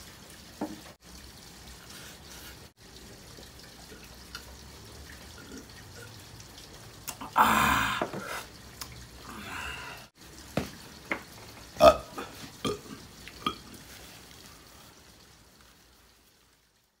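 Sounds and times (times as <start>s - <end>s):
man burping: 7.1s - 8.4s, 11.8s - 13.6s.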